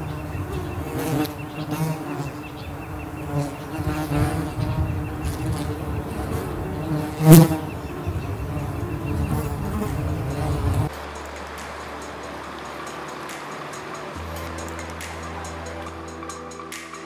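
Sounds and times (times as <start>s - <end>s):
flying insect buzzing: 0.0s - 10.9s.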